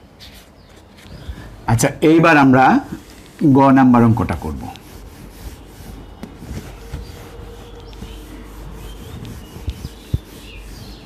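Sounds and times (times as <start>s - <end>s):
duster rubbing whiteboard: 2.8s - 11.0s.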